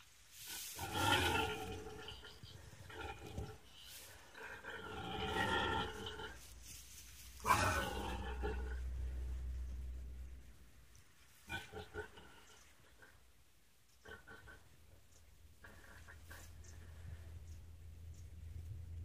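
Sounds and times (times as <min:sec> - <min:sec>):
pig squealing grunts: 0:07.4 - 0:08.8.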